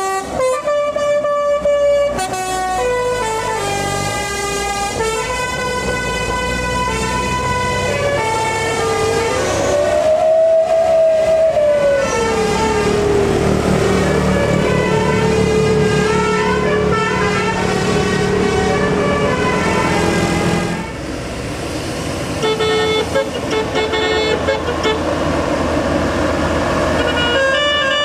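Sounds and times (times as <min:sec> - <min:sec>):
multi-tone air horn melody: 0:00.0 - 0:13.0, 0:14.0 - 0:21.0, 0:22.4 - 0:25.1, 0:26.9 - 0:28.0
vehicle engine hum: 0:00.0 - 0:28.0
air horn short rapid notes: 0:22.4 - 0:25.1, 0:27.0 - 0:28.0.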